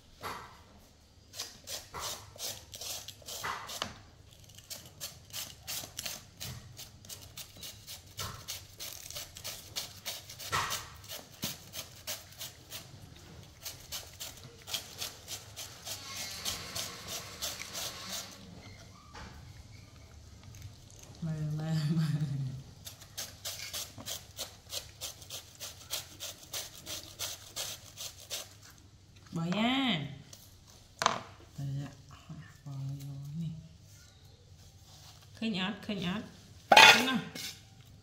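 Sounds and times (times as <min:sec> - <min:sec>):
shredder rasping vegetable: 0:01.4 - 0:18.6, 0:22.8 - 0:28.7.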